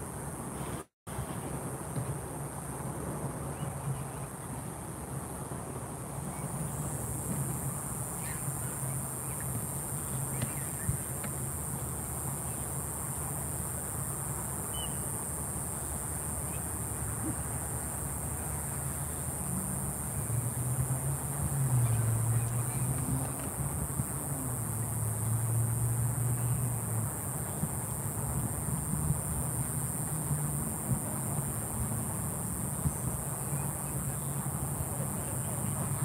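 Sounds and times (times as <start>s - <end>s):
high-pitched insect drone: 6.7s - 36.0s
faint chirps: 8.0s - 11.6s, 14.6s - 15.2s.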